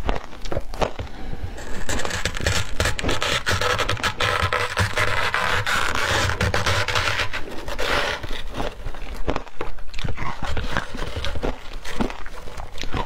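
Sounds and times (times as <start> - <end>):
ice crunching: 0.0 - 13.0
metal spoon scraping ice: 1.6 - 9.0.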